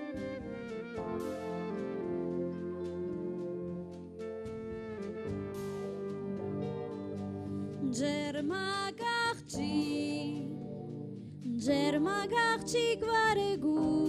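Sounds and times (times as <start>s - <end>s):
sustained accompaniment: 0.0s - 8.7s
clarinet folk melody: 0.0s - 9.3s.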